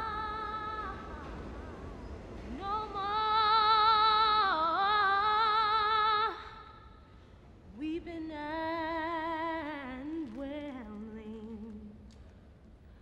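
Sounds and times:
woman singing gospel song: 0:00.0 - 0:01.5, 0:02.5 - 0:06.8, 0:07.7 - 0:12.1.

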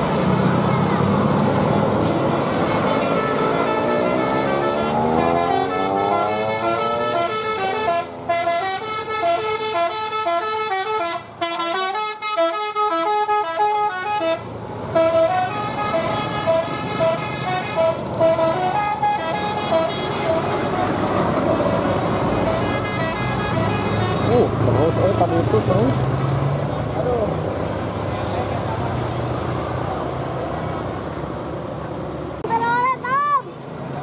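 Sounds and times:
multi-tone bus horn playing a tune: 0:02.1 - 0:24.5.

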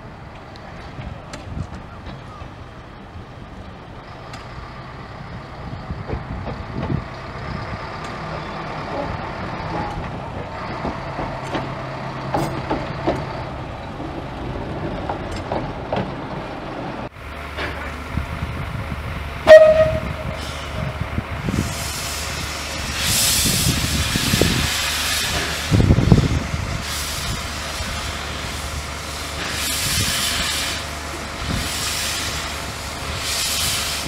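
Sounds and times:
diesel locomotive engine drone: 0:00.0 - 0:34.0
loud locomotive whistle: 0:19.4 - 0:21.0.

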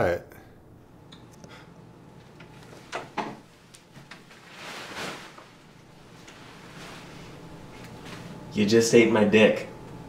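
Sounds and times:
chair scraping: 0:02.5 - 0:05.6.

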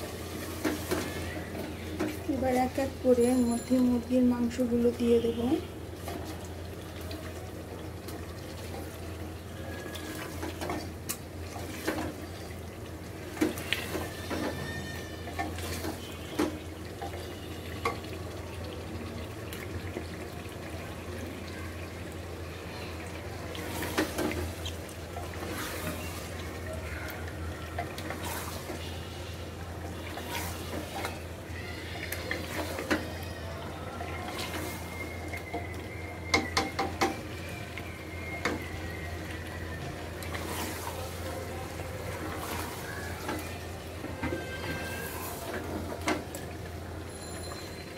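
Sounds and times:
masala sizzling: 0:00.0 - 0:47.9
wooden spatula scraping pot: 0:27.8 - 0:28.9, 0:30.0 - 0:31.3, 0:31.9 - 0:33.2, 0:40.3 - 0:41.2.

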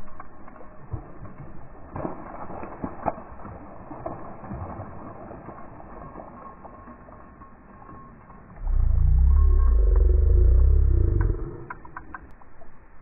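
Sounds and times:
water splashing: 0:00.1 - 0:07.8.

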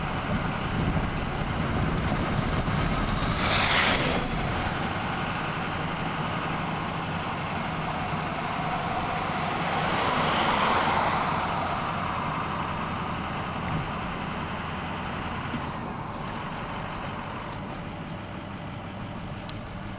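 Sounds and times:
diesel locomotive idling: 0:00.0 - 0:03.1, 0:04.3 - 0:19.9
rushing noise: 0:00.0 - 0:15.0.

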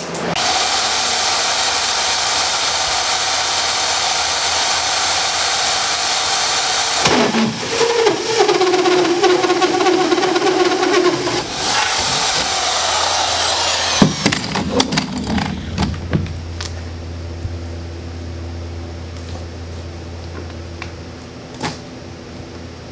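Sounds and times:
drill hole saw cutting: 0:00.4 - 0:16.1.

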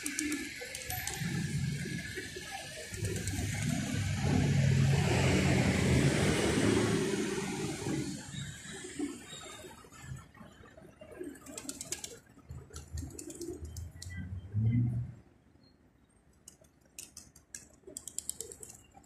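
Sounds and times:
pigeons cooing: 0:00.0 - 0:02.0, 0:11.2 - 0:14.0
fast sharp clicking: 0:11.5 - 0:14.2, 0:16.3 - 0:19.0.

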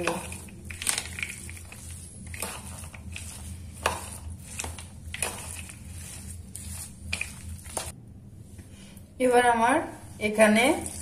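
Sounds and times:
spoon scraping plastic bowl: 0:00.0 - 0:07.9.

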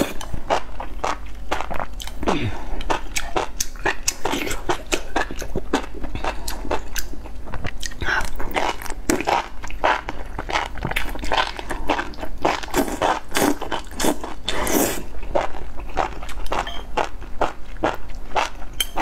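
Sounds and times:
chewing with crunchy bites: 0:00.0 - 0:19.0
person slurping: 0:07.8 - 0:15.1.

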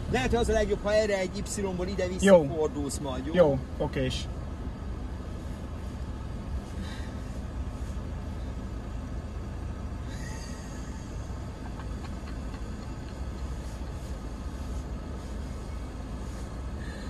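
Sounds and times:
vehicle engine rumble inside cabin: 0:00.0 - 0:17.0.

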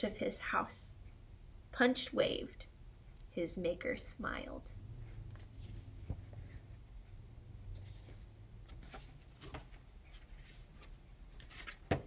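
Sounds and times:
low room hum: 0:00.0 - 0:12.0
book pages rustling and turning: 0:05.2 - 0:06.9, 0:07.6 - 0:12.0.

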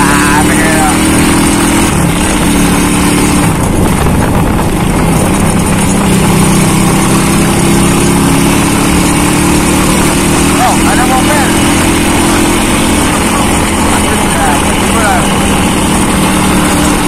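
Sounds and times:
motorcycle engine cruising: 0:00.0 - 0:17.0
wind and road noise: 0:00.0 - 0:17.0.

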